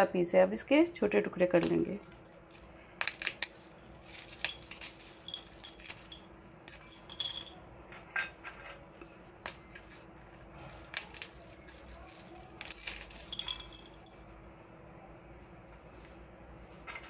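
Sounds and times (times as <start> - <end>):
biscuits snapping: 1.6 - 7.1, 9.4 - 14.0
pieces clinking in glass bowl: 4.1 - 7.6, 12.6 - 14.2.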